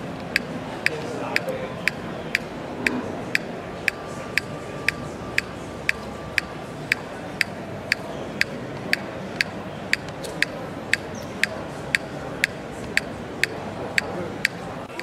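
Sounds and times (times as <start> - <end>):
steady background hum: 0.0 - 15.0
sharp regular ticking: 3.3 - 15.0.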